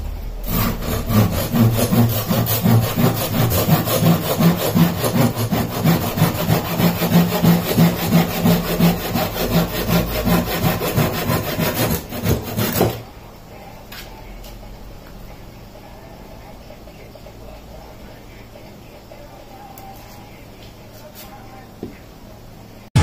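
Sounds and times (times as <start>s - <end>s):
hand saw cutting wood: 0.4s - 13.0s.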